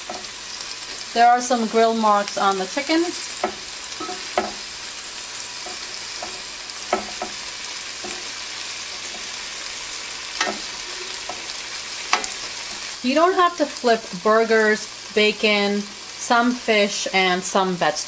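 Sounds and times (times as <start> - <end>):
chicken sizzling on a grill: 0.0 - 18.0
tongs clicking against grate: 12.1 - 12.4.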